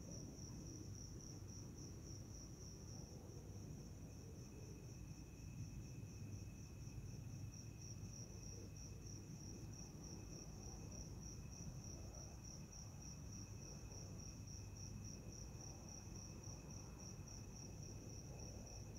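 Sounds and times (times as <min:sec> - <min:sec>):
lower steady insect trill: 0:00.0 - 0:18.9.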